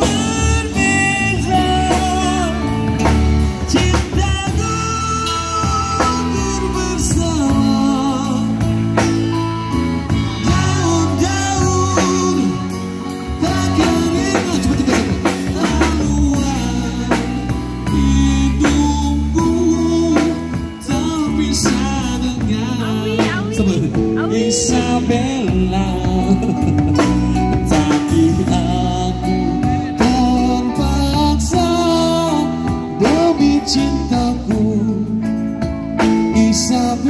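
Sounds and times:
bass guitar: 0.0s - 37.0s
drum kit: 0.0s - 37.0s
electric guitars: 0.0s - 37.0s
man singing: 0.0s - 37.0s.

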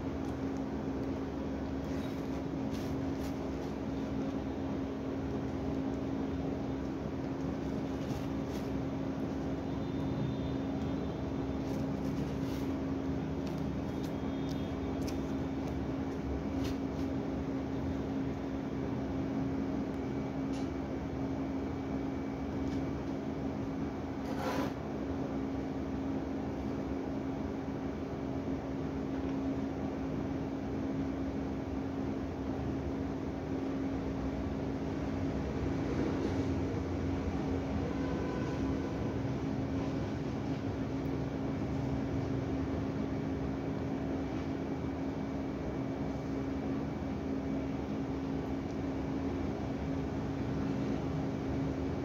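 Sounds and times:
steady machine hum: 0.0s - 52.0s
ribbon rustling: 1.7s - 4.4s, 7.3s - 9.5s, 11.6s - 17.2s.

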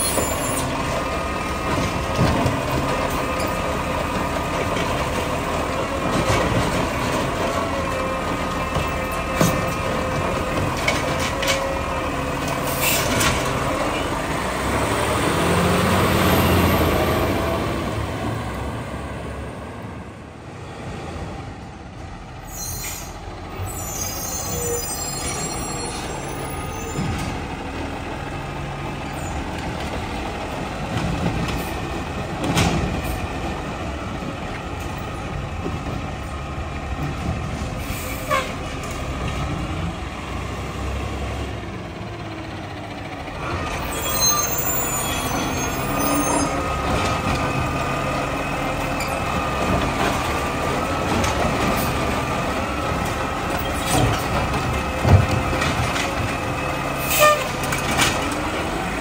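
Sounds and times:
high brake squeal: 0.0s - 0.8s, 22.4s - 27.2s, 37.8s - 38.6s, 43.8s - 46.6s, 57.0s - 57.6s
garbage truck diesel engine: 0.0s - 59.0s.

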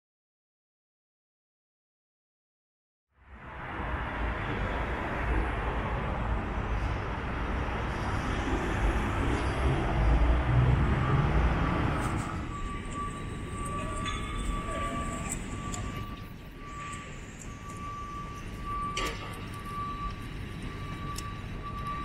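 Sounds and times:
vehicle passing with rushing rumble: 3.2s - 16.7s
high-pitched whine: 3.2s - 22.0s
light ticks: 21.1s - 21.9s.

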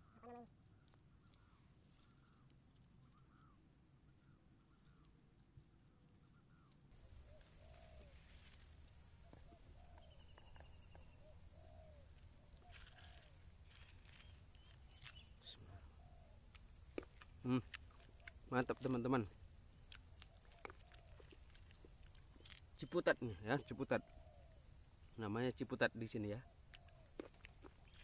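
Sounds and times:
high-pitched insect drone: 6.9s - 28.0s
bird calling: 9.2s - 16.4s.

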